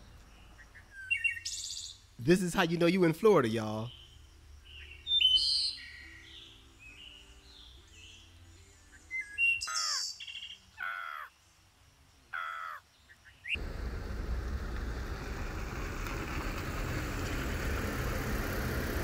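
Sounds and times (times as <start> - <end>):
cranes calling: 10.8 - 11.3, 12.4 - 12.8
outdoor rushing noise: 13.6 - 19.0.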